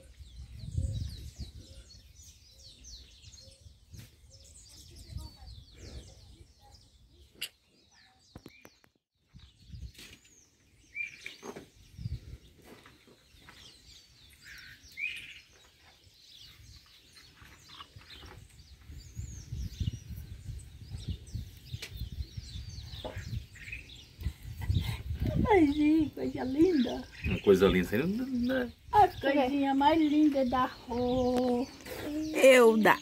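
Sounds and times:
birds chirping: 0:00.0 - 0:33.0.

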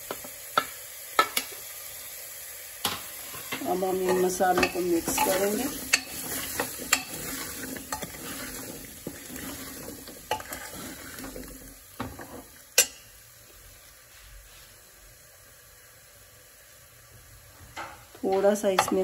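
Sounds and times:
light sizzle: 0:00.0 - 0:19.0
spoon scraping in a pot: 0:03.2 - 0:13.0.

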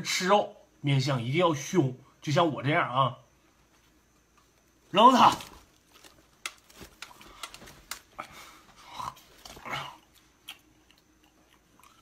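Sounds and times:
throaty sounds: 0:07.2 - 0:10.6.

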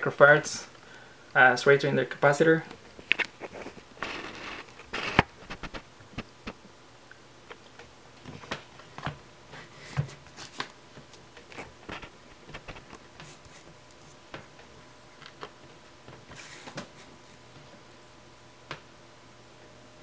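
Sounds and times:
rubbing sound: 0:03.3 - 0:06.3.

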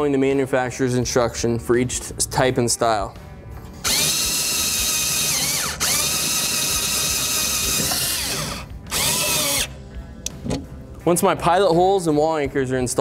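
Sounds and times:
drill motor whining: 0:03.8 - 0:09.8.

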